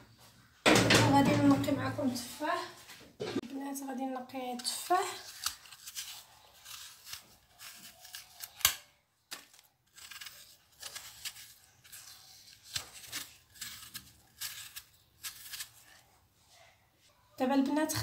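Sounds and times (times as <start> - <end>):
knife scraping apple skin: 4.5 - 16.1.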